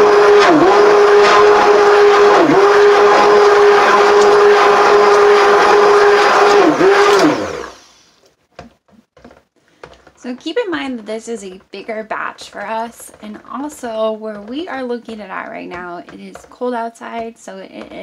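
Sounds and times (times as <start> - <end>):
immersion blender running: 0.0 - 8.0.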